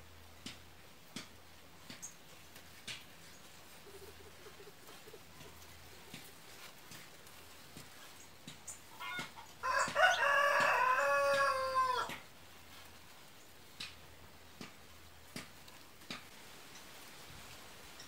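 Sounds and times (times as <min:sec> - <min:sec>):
rooster crowing: 0:09.0 - 0:12.2.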